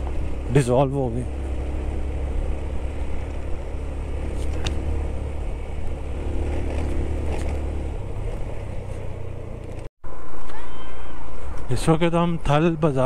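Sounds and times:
motorcycle engine rumbling: 0.0s - 9.9s.

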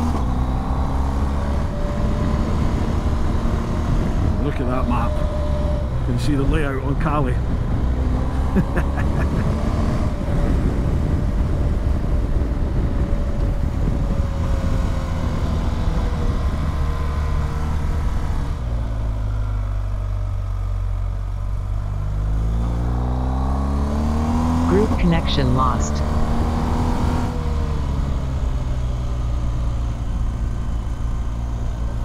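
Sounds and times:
wind rush on microphone: 1.5s - 8.4s, 9.1s - 19.0s.

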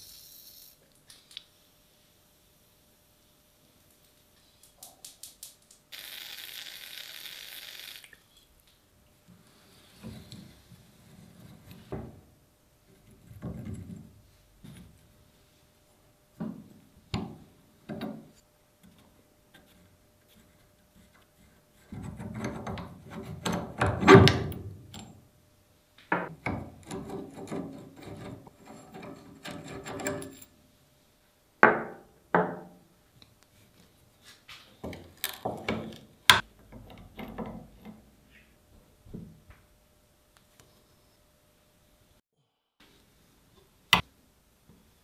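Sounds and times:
wrench rubbing and scraping: 26.7s - 30.5s.

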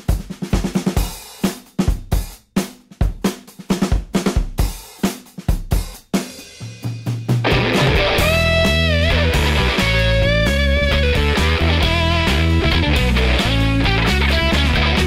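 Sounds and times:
drum kit playing steady beat: 0.0s - 15.0s
low held bass tone: 7.5s - 15.0s.

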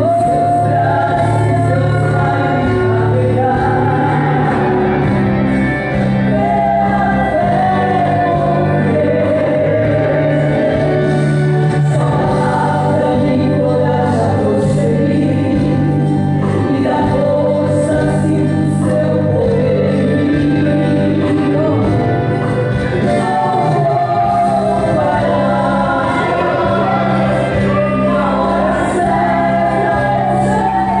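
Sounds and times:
sustained musical accompaniment: 0.0s - 31.0s
women singing a gospel duet: 0.0s - 31.0s.

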